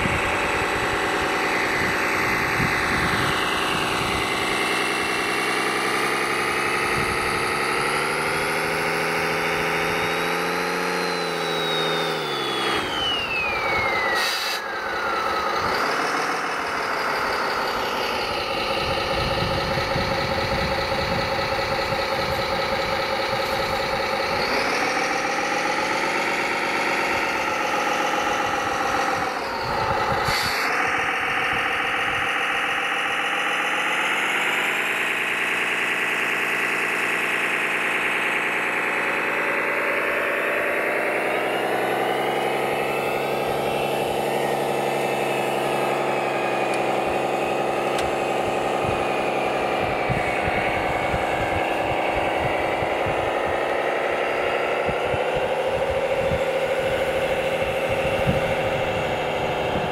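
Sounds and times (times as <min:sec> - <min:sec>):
whistle gliding down: 0:00.0 - 0:19.0
model truck engine running: 0:00.0 - 0:59.9.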